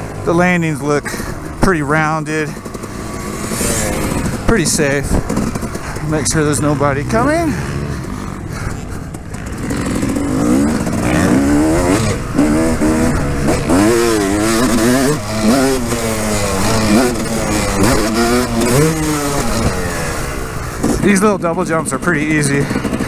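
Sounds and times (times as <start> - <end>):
two-stroke motocross engine revving: 0.0 - 23.0.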